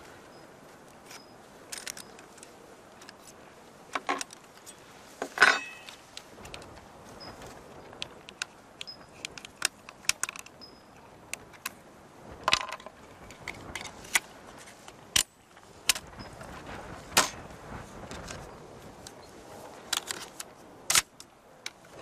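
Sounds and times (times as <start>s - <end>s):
metallic gun parts clicking: 1.7s - 3.2s.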